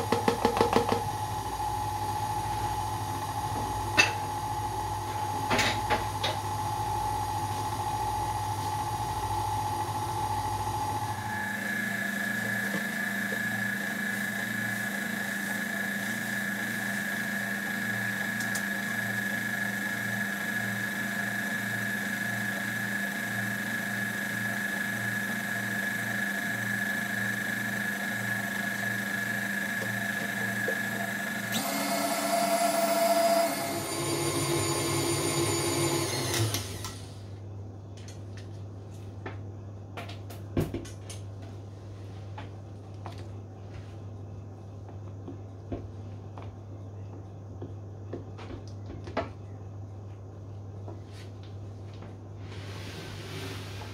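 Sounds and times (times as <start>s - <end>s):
stand mixer motor running: 6.6s - 37.1s.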